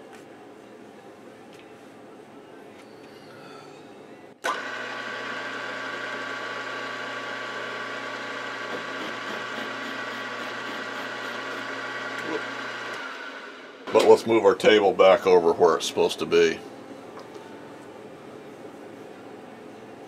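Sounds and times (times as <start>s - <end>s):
milling machine humming and whining: 4.4s - 14.0s.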